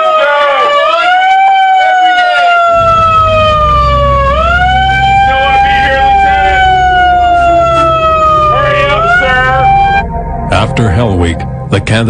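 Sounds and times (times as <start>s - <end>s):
wailing siren: 0.0s - 10.6s
low steady rumble: 2.8s - 12.0s.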